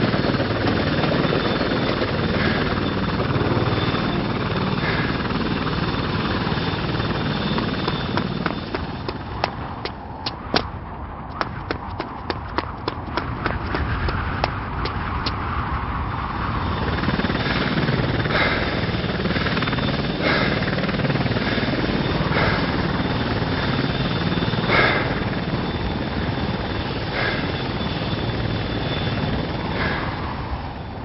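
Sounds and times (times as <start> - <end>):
helicopter rotor rumble: 0.0 - 31.0.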